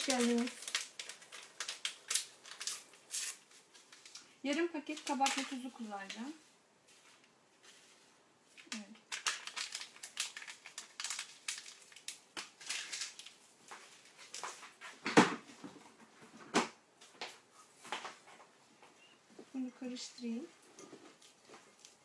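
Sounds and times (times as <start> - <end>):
packet crinkling and rustling: 0.0 - 6.4, 8.5 - 15.2, 20.3 - 22.0.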